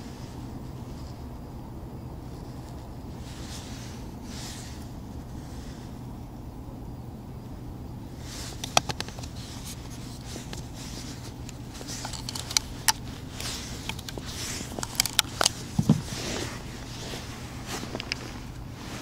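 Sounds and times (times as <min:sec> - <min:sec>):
rustling of handled tackle: 0:08.2 - 0:19.0
sharp clicks and ticks: 0:11.3 - 0:15.9.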